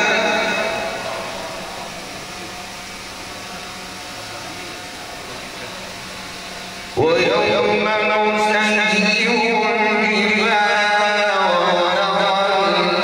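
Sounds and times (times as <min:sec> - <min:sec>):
man chanting recitation over pa: 0:00.0 - 0:01.2, 0:07.0 - 0:13.0
steady hiss with low hum: 0:00.0 - 0:13.0.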